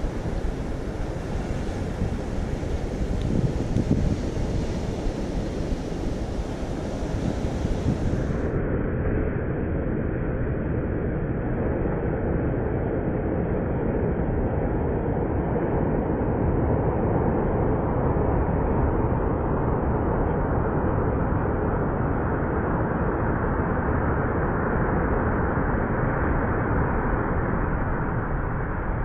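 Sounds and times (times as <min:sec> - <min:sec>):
surf breaking on beach: 0:00.0 - 0:08.5.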